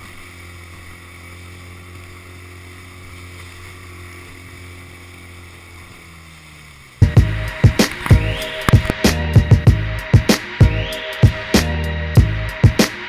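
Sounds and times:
outboard motor running: 0.0s - 12.8s
water hissing: 0.0s - 13.0s
wind: 0.0s - 13.0s.

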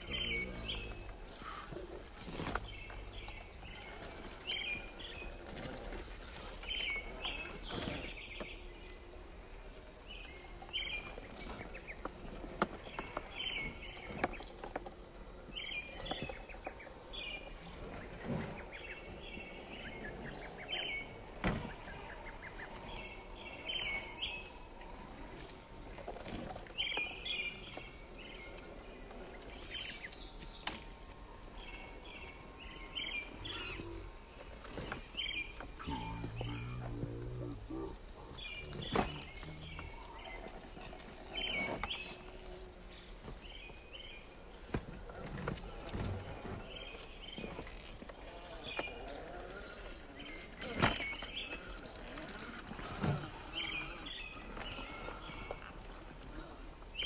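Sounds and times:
songbirds chirping: 0.0s - 57.0s.

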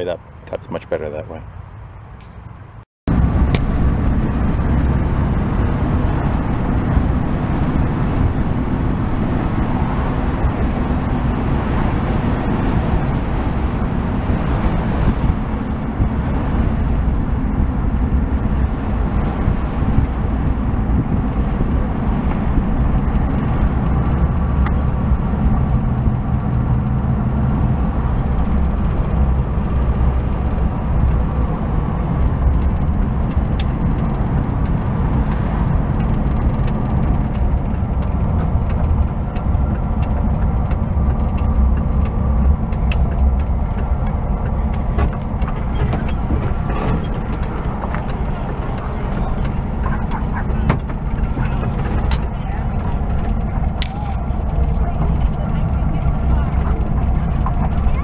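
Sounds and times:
road noise: 0.0s - 58.0s
van engine drone from inside: 0.0s - 58.0s
light rattles and clicks: 31.9s - 58.0s.

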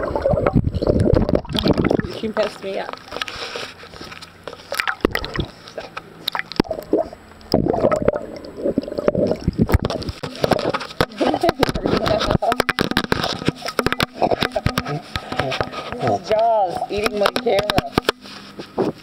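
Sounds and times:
pool water sloshing and gurgling: 0.0s - 19.0s.

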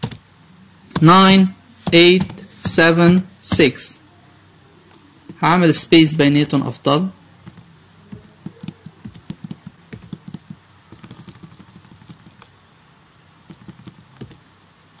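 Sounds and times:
computer keyboard typing: 0.0s - 0.2s, 1.8s - 2.4s, 7.4s - 12.6s, 13.4s - 14.4s.

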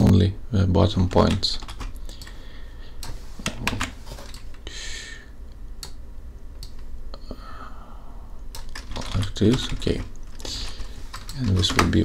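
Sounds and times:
low steady hum: 0.0s - 12.0s
keyboard and mouse clicks: 6.6s - 6.9s, 8.5s - 12.0s.

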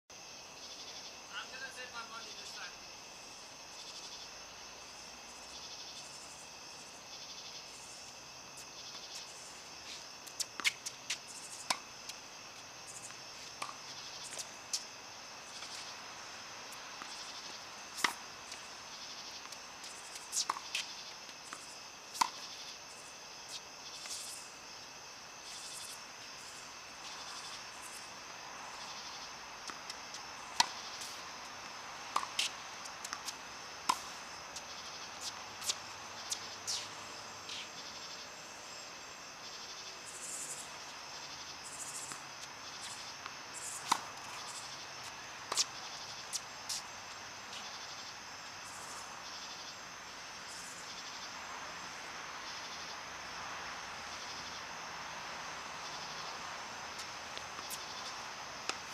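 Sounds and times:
insects chirring: 0.1s - 58.9s
tennis balls struck by rackets: 19.3s - 22.5s, 29.7s - 36.9s, 42.9s - 46.8s.

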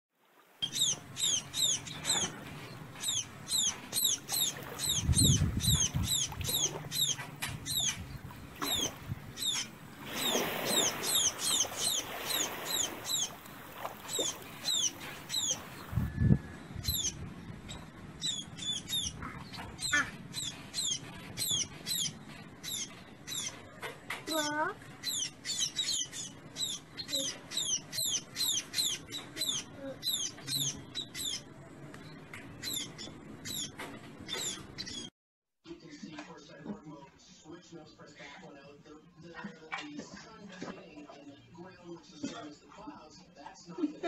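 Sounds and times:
fledgling birds cheeping: 0.6s - 35.1s.

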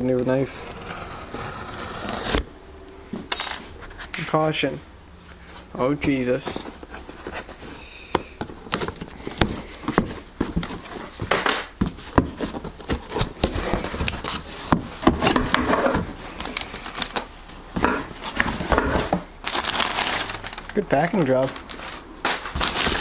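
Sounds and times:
cardboard scraping: 0.3s - 2.5s, 6.1s - 23.0s
packing paper rustling: 6.1s - 23.0s.

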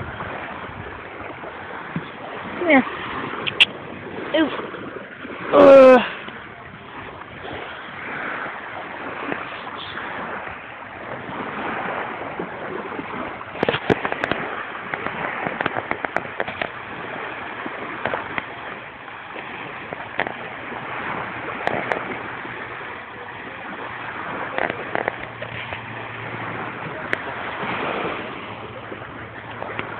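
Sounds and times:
sea surf on a beach: 0.0s - 29.9s
sharp clicks and crackles: 13.6s - 16.8s.

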